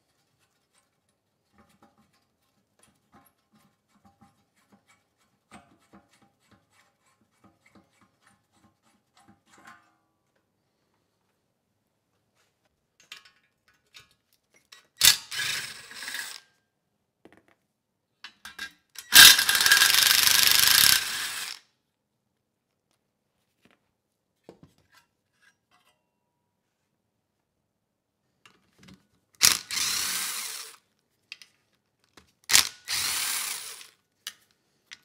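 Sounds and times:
cordless power driver spinning: 19.1 - 21.6, 29.4 - 30.8, 32.5 - 33.9.

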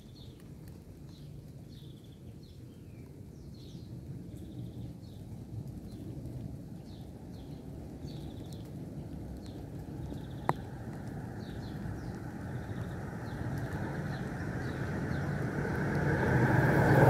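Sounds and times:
small birds chirping: 0.0 - 16.4
low street rumble: 0.0 - 17.0
vehicle approaching: 9.4 - 17.0.

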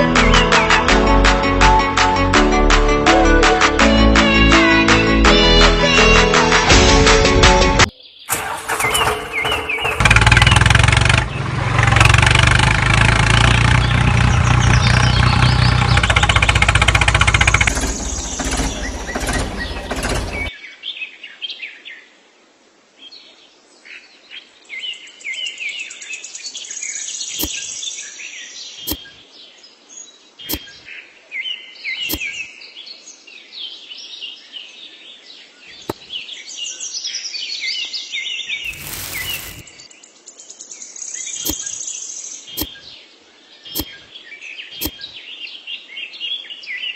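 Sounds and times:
birds chirping: 7.9 - 20.6, 26.8 - 32.8, 35.4 - 46.7
tractor engine running: 8.3 - 20.5, 38.6 - 39.6
sand being poured: 38.6 - 39.8
sharp clicks: 43.8 - 44.0.

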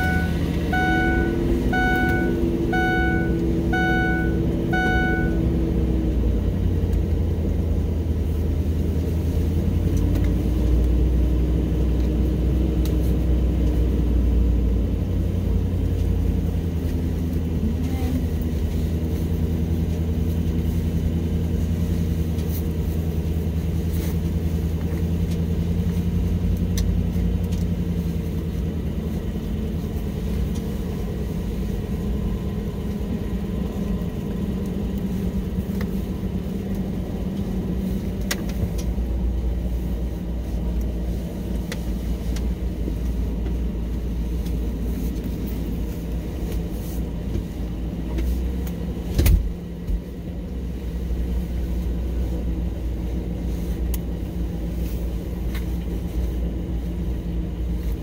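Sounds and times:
dashboard warning chime: 0.0 - 5.5
car engine idling: 0.0 - 58.0.

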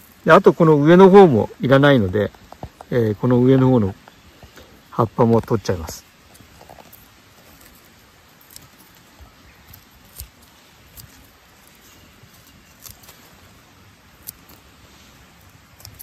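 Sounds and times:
faint rustling: 2.0 - 16.0
leaves snapping off stems: 6.8 - 13.4, 14.2 - 14.7, 15.7 - 16.0.

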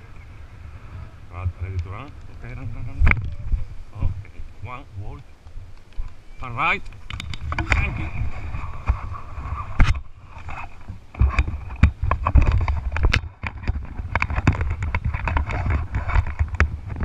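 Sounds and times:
wind buffeting microphone: 0.0 - 17.0
harness clicks and rustles: 6.8 - 17.0.

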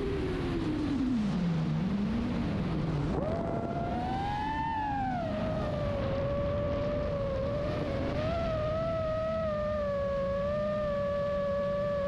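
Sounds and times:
drone motors whining: 3.1 - 12.0.

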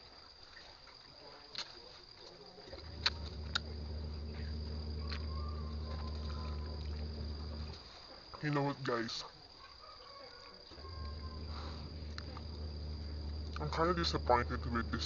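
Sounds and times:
insects droning: 0.0 - 15.0
low steady hum: 2.7 - 7.9, 10.8 - 15.0
sharp clicks: 2.8 - 7.8.

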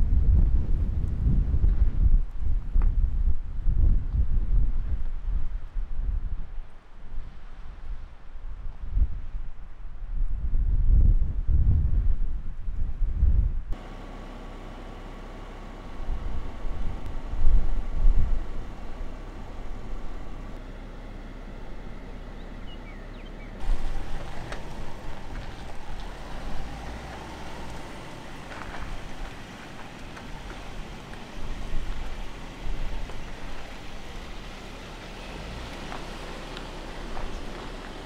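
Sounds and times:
wind rumbling on microphone: 0.0 - 14.0, 15.1 - 20.6, 21.6 - 38.0
tyres crunching over gravel: 13.8 - 38.0
vehicle crawling over rocks: 13.8 - 38.0.

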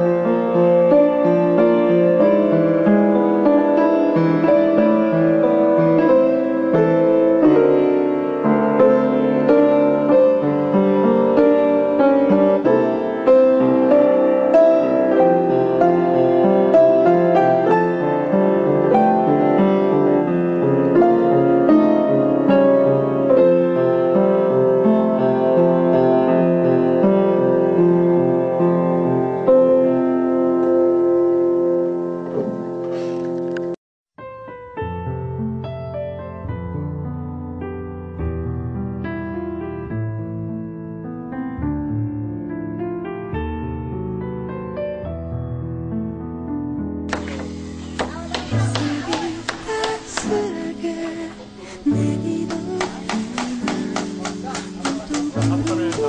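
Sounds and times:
piano music: 0.0 - 56.0.

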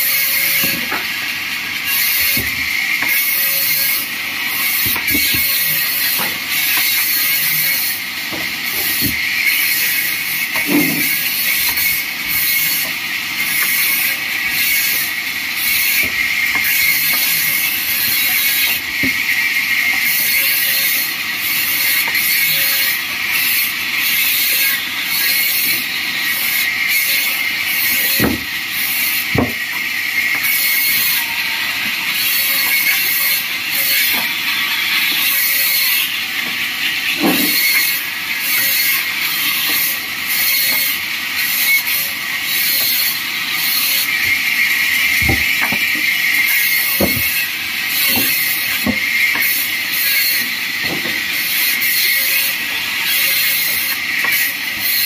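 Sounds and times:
bandsaw cutting wood: 0.0 - 55.0
boards knocking on table: 10.6 - 11.1, 28.2 - 28.5, 29.4 - 29.6, 37.2 - 37.6, 45.2 - 45.9, 47.0 - 47.3.

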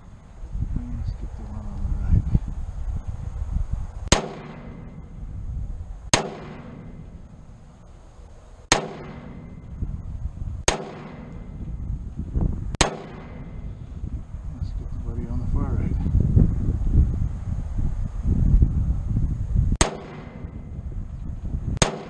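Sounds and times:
rifle shots: 4.1 - 5.1, 6.1 - 7.4, 8.7 - 9.7, 10.6 - 11.6, 12.8 - 13.7, 19.8 - 20.7, 21.8 - 22.0.

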